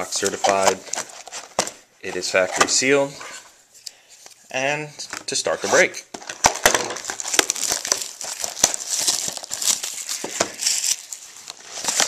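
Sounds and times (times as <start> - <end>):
plastic shrink wrap crinkling: 0.0 - 2.8, 6.2 - 12.0.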